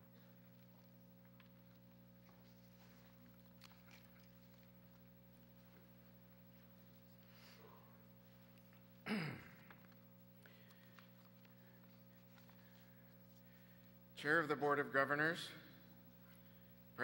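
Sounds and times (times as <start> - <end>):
low electrical hum: 0.0 - 17.0
faint rustles and ticks: 0.1 - 9.0, 9.6 - 14.1.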